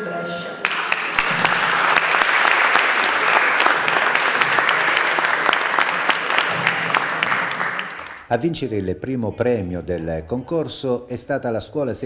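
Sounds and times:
audience applauding: 0:00.6 - 0:08.3.

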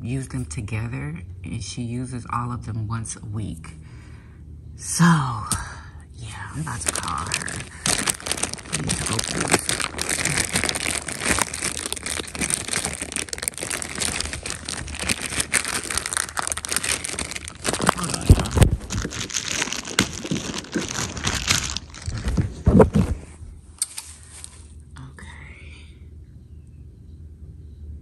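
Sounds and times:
packaging crinkling: 0:06.6 - 0:24.8.

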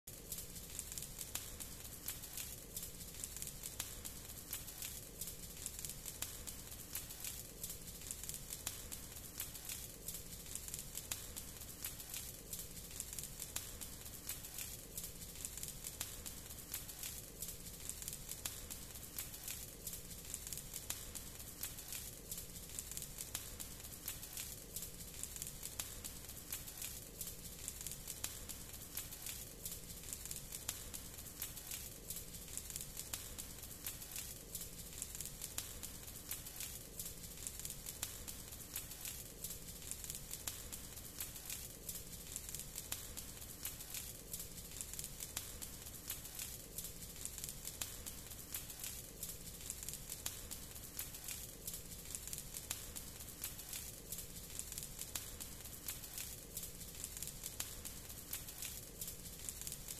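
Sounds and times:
fire crackling and popping: 0:00.0 - 0:59.9
low rumbling hiss of flame: 0:00.1 - 0:59.9.

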